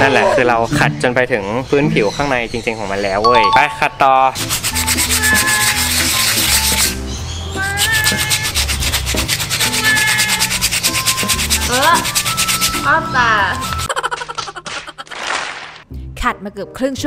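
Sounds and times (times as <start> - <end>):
sandpaper rasping on coconut shell: 4.4 - 13.9.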